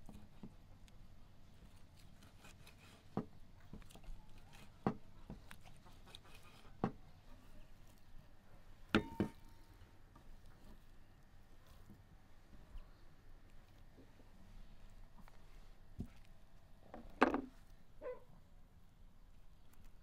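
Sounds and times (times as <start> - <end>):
knife knocking on wooden board: 9.0 - 9.4.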